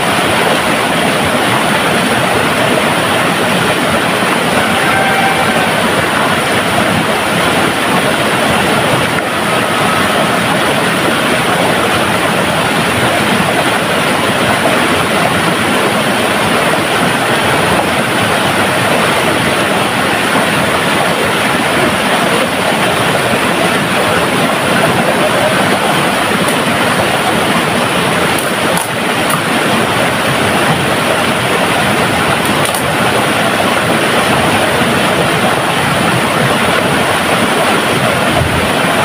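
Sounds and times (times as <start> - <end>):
stream rushing over rocks: 0.0 - 39.0.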